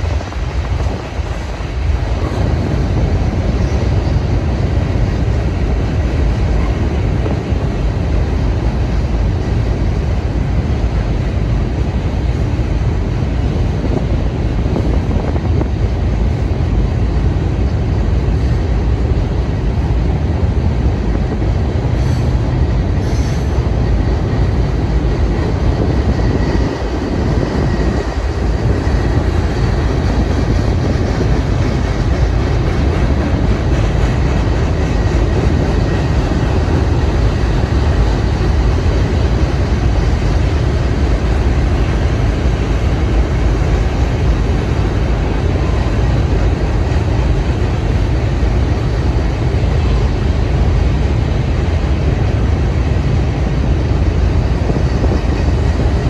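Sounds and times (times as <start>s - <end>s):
train wheels rumbling on bridge: 0.0s - 56.0s.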